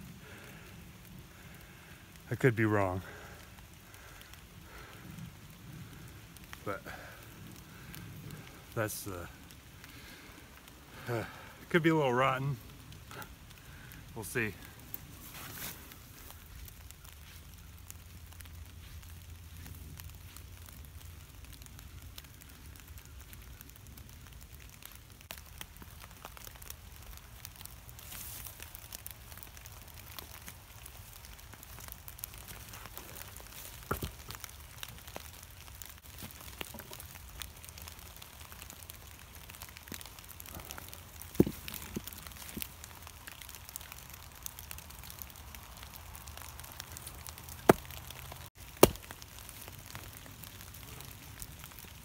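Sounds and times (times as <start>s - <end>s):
light rain pattering: 0.0s - 52.0s.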